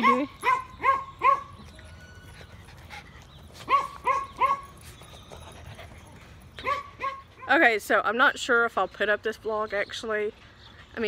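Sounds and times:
dog yipping: 0.0s - 2.6s, 3.6s - 4.8s, 6.0s - 7.6s.

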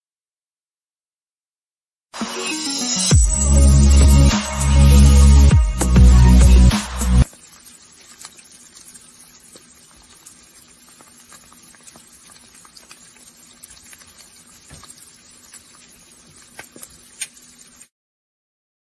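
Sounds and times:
faint crackling hiss: 5.4s - 17.9s
small clicks: 7.2s - 17.9s.

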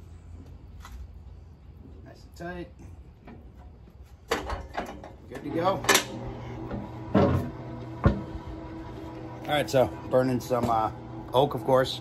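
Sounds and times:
low motor hum: 5.4s - 12.0s.

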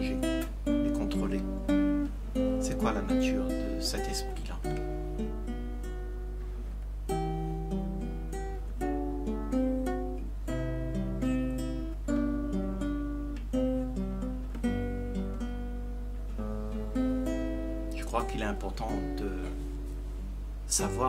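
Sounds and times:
plucked string instrument notes: 0.0s - 21.0s
steady low hum: 0.0s - 21.0s.

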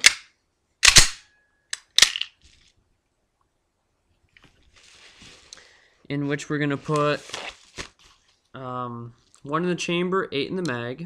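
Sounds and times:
sharp metallic pistol clicks: 0.0s - 2.3s
faint papery rustle: 4.1s - 9.5s.

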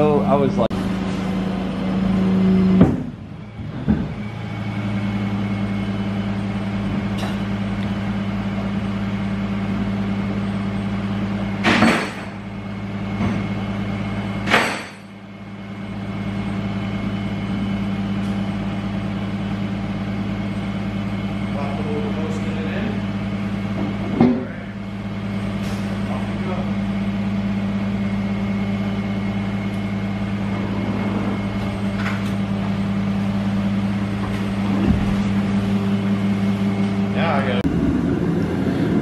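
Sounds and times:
vehicle engine idling: 0.0s - 39.0s.

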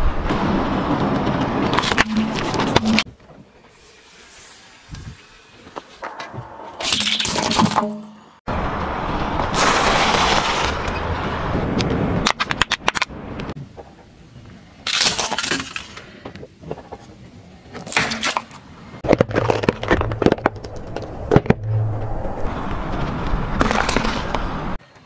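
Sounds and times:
tyre crushing crackers: 19.0s - 21.6s.

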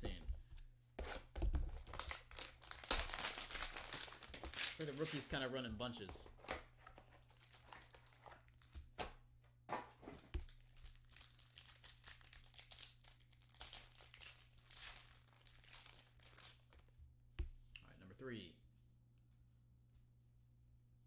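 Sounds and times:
plastic wrapper crinkling and tearing: 1.6s - 5.3s, 7.1s - 8.9s, 10.2s - 16.9s.

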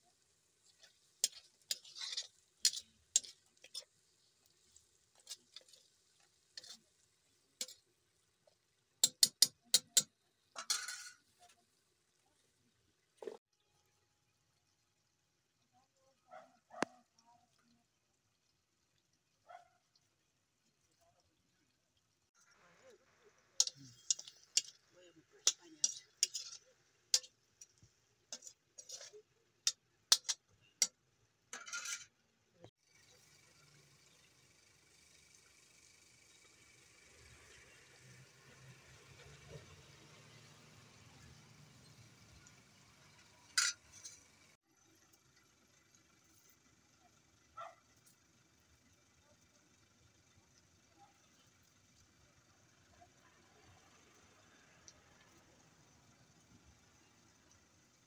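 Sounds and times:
curry simmering hiss: 0.0s - 10.6s, 17.0s - 31.5s, 32.2s - 58.0s
metal spoon scraping in wok: 0.2s - 11.3s, 23.6s - 24.8s, 25.4s - 30.9s, 31.6s - 32.2s, 41.9s - 44.6s
spoon tapping wok rim: 9.0s - 10.1s.

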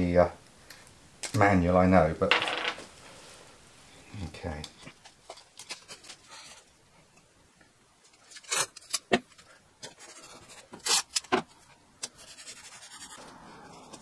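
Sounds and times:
masking tape pulled off roll: 10.8s - 11.4s.

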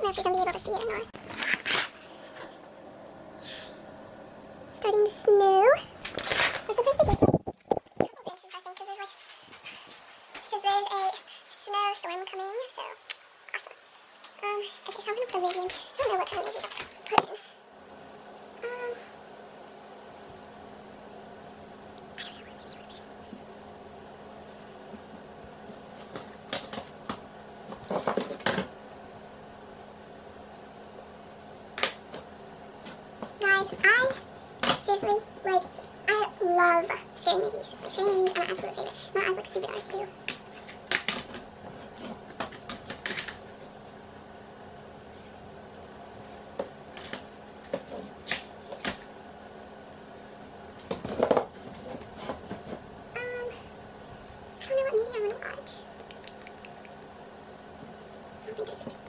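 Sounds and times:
steady low hum: 0.0s - 59.0s
clicks and knocks of rummaging: 26.0s - 28.7s, 40.2s - 43.5s.

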